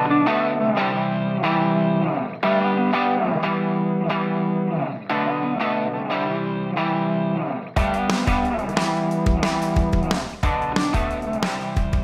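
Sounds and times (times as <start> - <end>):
distorted electric guitar chords: 0.0 - 12.0.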